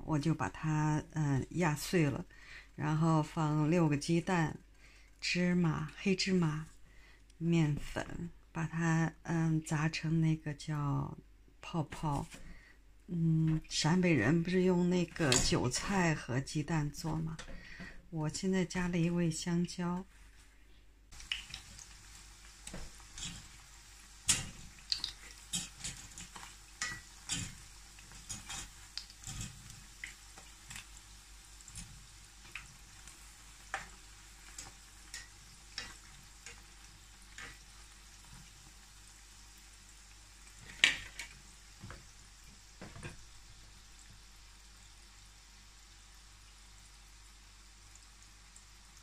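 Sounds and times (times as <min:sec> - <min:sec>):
oil sizzling: 0:13.5 - 0:20.4, 0:21.1 - 0:49.0
chopsticks tapping rack and pot: 0:24.2 - 0:30.8.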